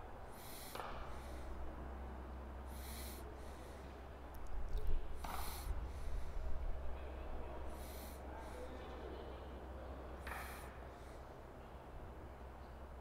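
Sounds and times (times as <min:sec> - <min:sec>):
wind gusts hissing: 0:05.0 - 0:07.0.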